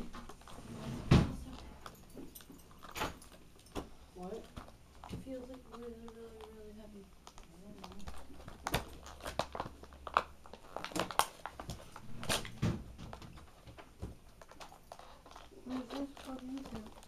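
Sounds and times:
toy packaging crinkling: 4.3 - 12.5, 14.4 - 17.0.

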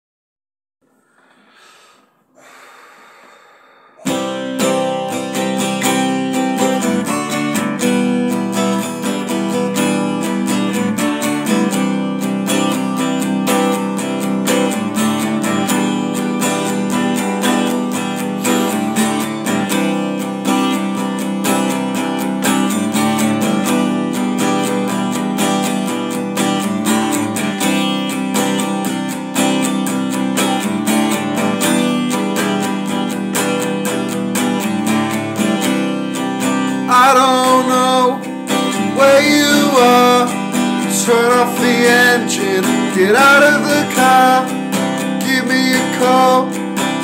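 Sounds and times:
acoustic guitar strumming: 4.0 - 47.0.

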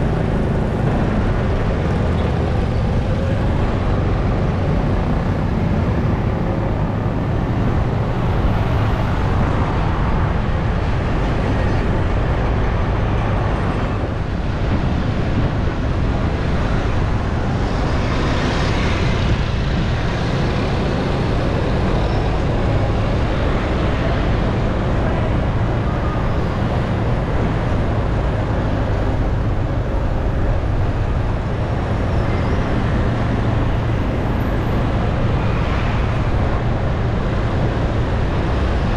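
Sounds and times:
road traffic noise: 0.0 - 38.9.

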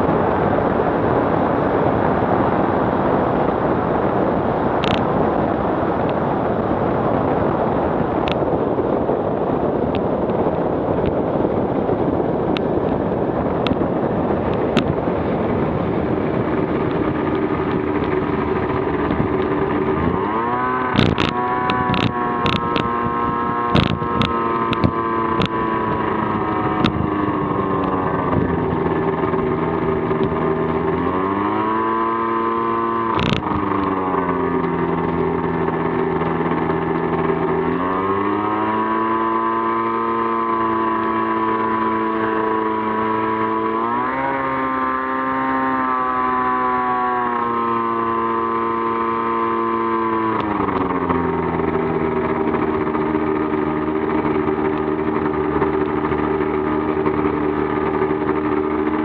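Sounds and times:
light aircraft engine and propeller: 0.0 - 59.0
rushing wind noise: 0.0 - 59.0
sharp clicks: 20.9 - 22.9, 33.1 - 34.0.

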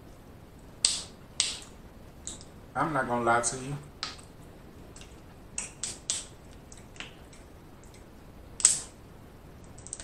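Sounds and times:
crab shells cracking by hand: 5.0 - 9.0, 9.6 - 10.0.

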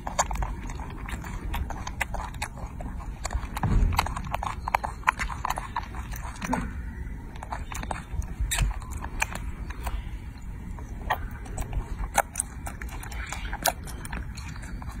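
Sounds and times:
monkey chewing wetly: 0.0 - 15.0
steady low rumble: 0.0 - 15.0.

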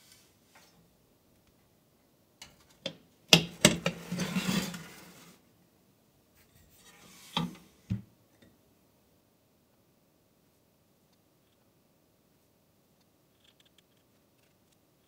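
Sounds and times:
baking tray scraping: 3.5 - 5.4, 6.4 - 7.8.

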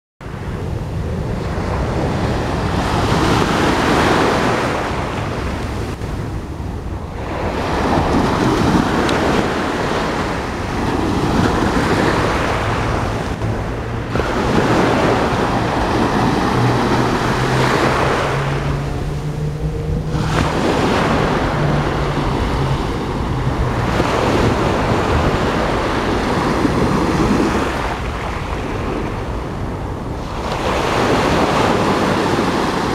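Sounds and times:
small waves breaking on beach: 0.3 - 32.9
faint low hum rising in pitch: 12.9 - 26.0.

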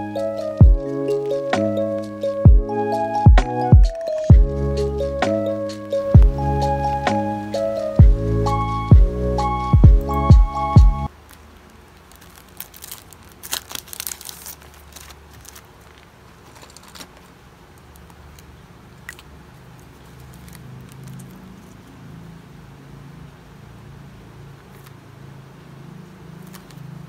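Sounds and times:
low steady hum: 0.0 - 12.1
small objects clicking and crinkling: 4.0 - 4.3, 11.1 - 21.9, 26.4 - 26.9.

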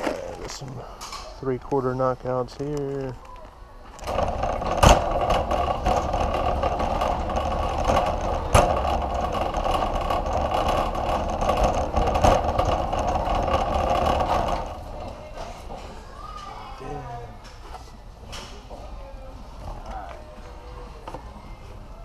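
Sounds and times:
shopping cart knocks: 4.0 - 14.9
shopping cart rattling: 4.0 - 15.6.

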